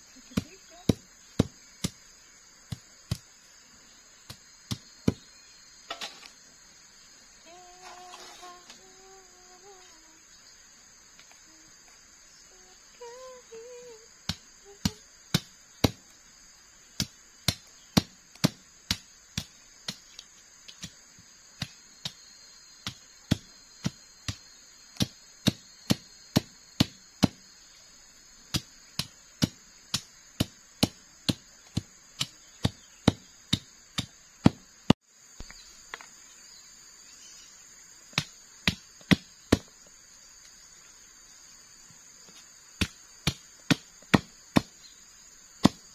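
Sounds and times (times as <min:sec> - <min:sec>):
insects buzzing: 0:00.0 - 0:45.9
machete chopping wood: 0:42.8 - 0:44.8, 0:45.6 - 0:45.9.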